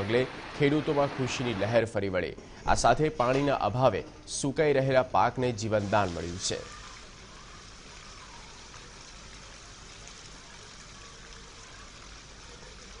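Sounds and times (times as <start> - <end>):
heavy rain falling: 0.0 - 1.7.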